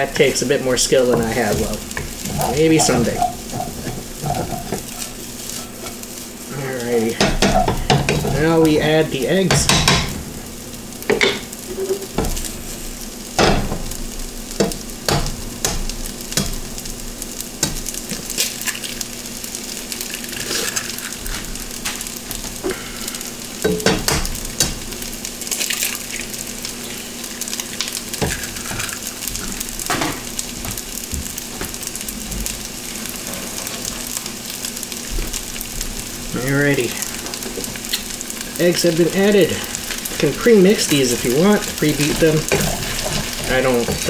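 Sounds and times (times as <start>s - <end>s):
rice sizzling in a wok: 0.0s - 44.0s
eggs knocking on a pan: 7.2s - 8.5s, 9.4s - 10.2s, 11.1s - 12.4s, 13.4s - 13.9s, 14.6s - 16.7s, 23.6s - 24.8s.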